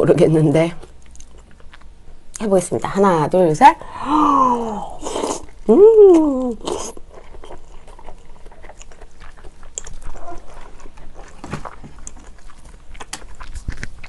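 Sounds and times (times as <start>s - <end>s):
wet mouth chewing: 0.8s - 2.5s, 5.0s - 5.7s, 6.4s - 14.0s.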